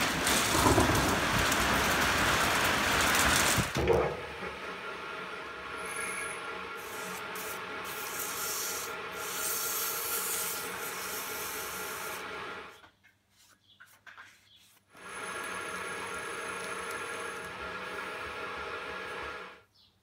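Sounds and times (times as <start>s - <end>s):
metal lathe humming: 0.0s - 12.7s, 15.0s - 19.6s.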